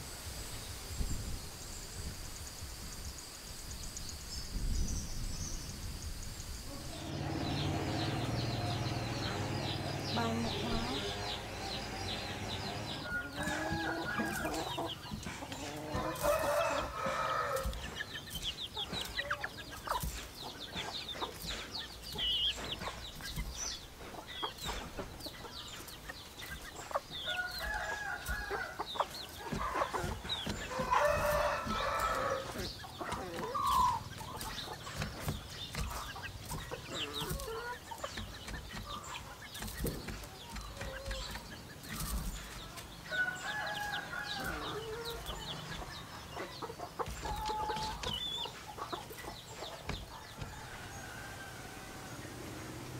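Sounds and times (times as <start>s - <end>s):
rooster crowing: 6.7s - 14.9s, 15.9s - 17.8s, 27.3s - 28.9s, 30.6s - 32.7s, 43.1s - 45.5s, 50.4s - 52.8s
clucking calls: 6.7s - 43.0s, 43.6s - 52.8s.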